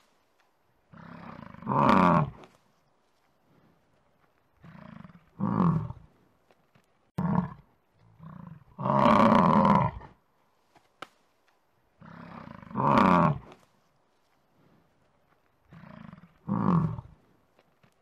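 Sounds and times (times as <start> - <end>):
bison grunts: 15.7 - 17.2.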